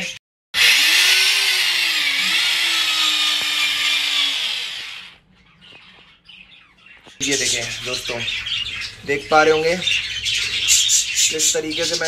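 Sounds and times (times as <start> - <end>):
electric drill boring into wall: 0.6 - 5.2.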